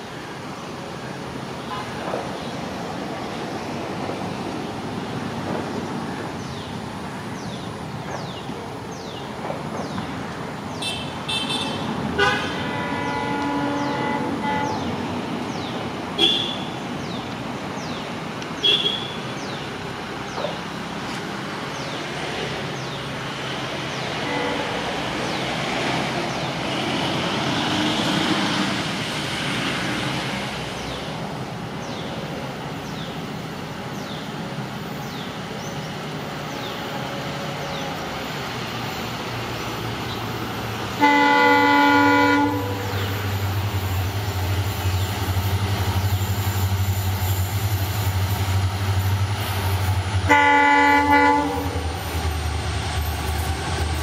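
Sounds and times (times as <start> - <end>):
diesel locomotive engines rumbling: 0.0 - 54.0
train horn blast: 10.8 - 15.0, 24.2 - 25.0, 41.0 - 43.2, 50.2 - 51.9.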